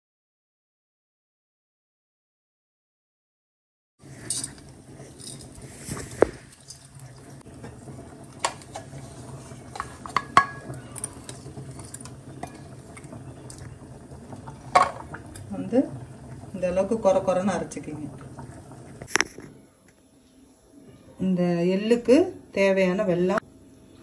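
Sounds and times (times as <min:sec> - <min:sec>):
low steady hum: 0:04.0 - 0:24.0
metal spoon scraping steel bowl: 0:04.2 - 0:07.1.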